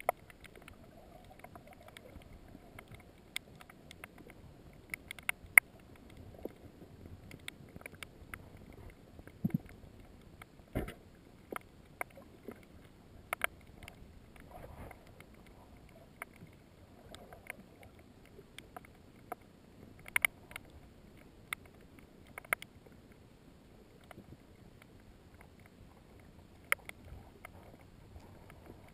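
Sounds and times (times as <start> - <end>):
sharp underwater clicks and knocks: 0.0 - 23.2, 24.0 - 28.9
faint underwater wash: 0.0 - 28.9.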